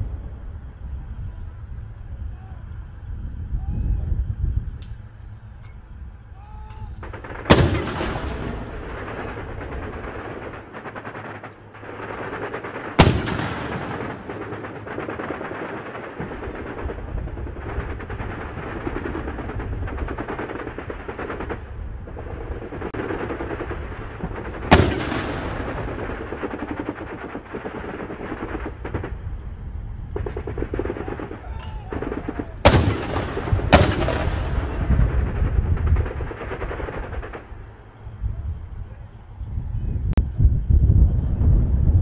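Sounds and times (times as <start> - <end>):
loud sharp gunshot report: 7.1 - 9.8, 30.3 - 35.1.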